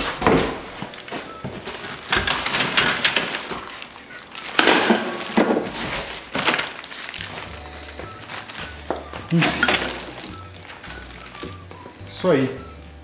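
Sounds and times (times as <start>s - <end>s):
plastic wrap crinkling: 0.0s - 11.9s
cardboard and foam scraping: 5.2s - 11.4s.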